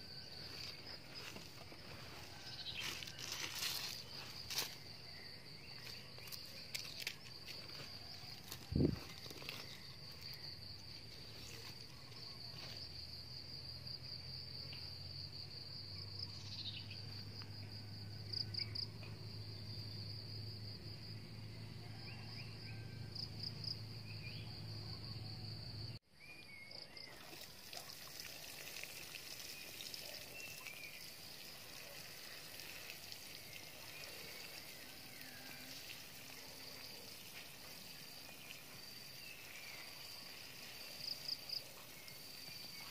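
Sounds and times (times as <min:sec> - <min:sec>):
insects chirring: 0:00.0 - 0:42.9
water sprinkling onto soil: 0:27.1 - 0:38.8.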